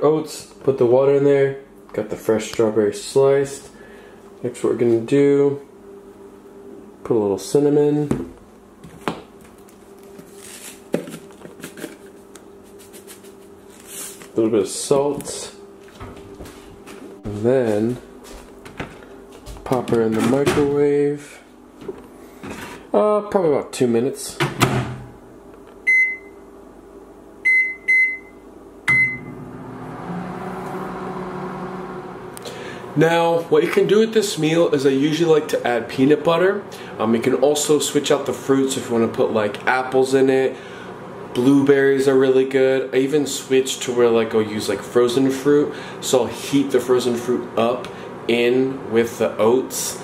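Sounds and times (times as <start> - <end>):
faint steady hum: 0.0 - 30.1, 30.7 - 50.0
microwave keypad beeps: 25.9 - 26.4, 27.4 - 29.4.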